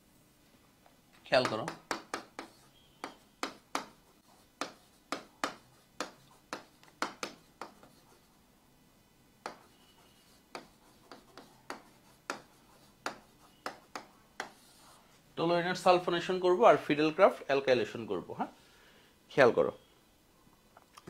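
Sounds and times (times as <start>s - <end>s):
stylus tapping on screen: 1.4s - 4.0s, 4.6s - 8.0s, 9.4s - 9.8s, 10.5s - 14.6s.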